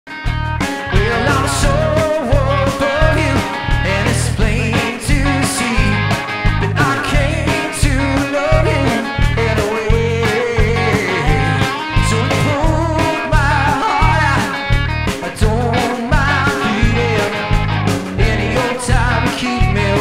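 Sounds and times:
drum kit beat: 0.1 - 20.0
guitar: 0.1 - 20.0
pulsing bass notes: 0.3 - 20.0
wavering melody line: 10.6 - 12.2.

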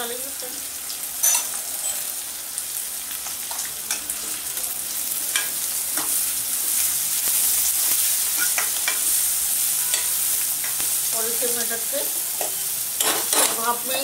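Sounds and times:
vegetables sizzling in a pan: 0.0 - 14.0
ladle clinking and scraping pan: 12.4 - 13.7.

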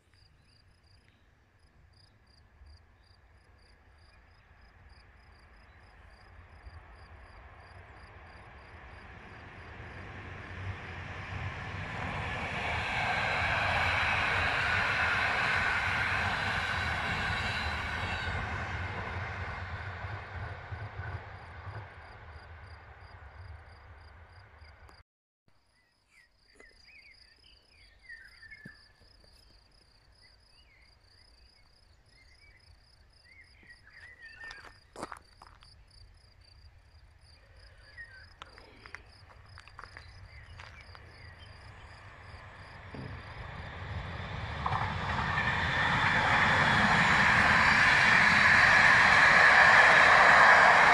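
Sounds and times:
train approaching: 1.6 - 25.0, 29.7 - 50.9
passenger train running past: 2.5 - 25.0, 37.8 - 50.9
bird chirps: 25.8 - 35.0.

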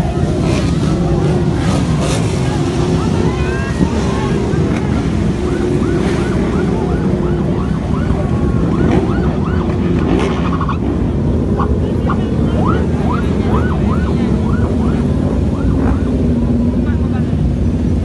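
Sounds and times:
police siren yelping: 0.0 - 16.6
motorcycles riding past: 0.0 - 18.0.

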